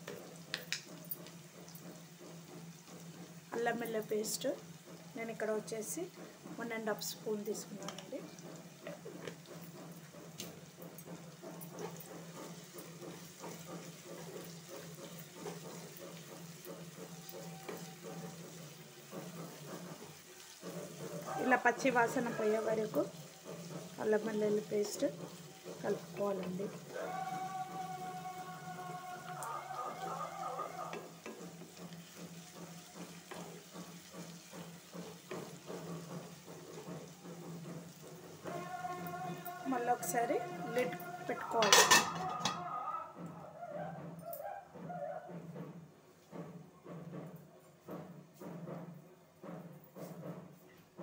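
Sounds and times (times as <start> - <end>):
light sizzle: 0.0 - 44.5
spatula scraping a pan: 7.8 - 43.2.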